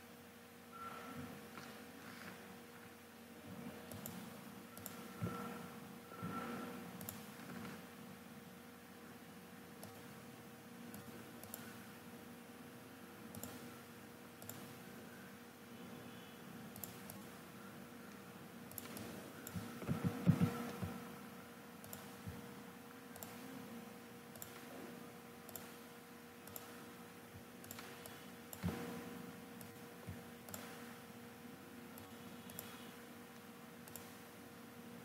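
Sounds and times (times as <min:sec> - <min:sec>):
low electrical hum: 0:00.0 - 0:35.0
computer mouse clicks: 0:03.9 - 0:05.5, 0:07.0 - 0:07.8, 0:09.8 - 0:10.2, 0:10.9 - 0:11.8, 0:13.3 - 0:13.7, 0:14.4 - 0:14.8, 0:16.7 - 0:17.4, 0:18.1 - 0:21.0, 0:21.8 - 0:22.4, 0:23.1 - 0:23.5, 0:24.3 - 0:24.8, 0:25.4 - 0:27.0, 0:27.6 - 0:29.0, 0:29.6 - 0:31.0, 0:32.0 - 0:34.3.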